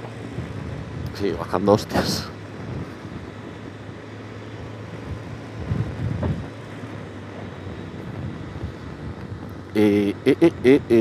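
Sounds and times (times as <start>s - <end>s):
motorcycle engine running: 0.0s - 11.0s
road noise: 0.0s - 11.0s
wind noise: 0.0s - 11.0s.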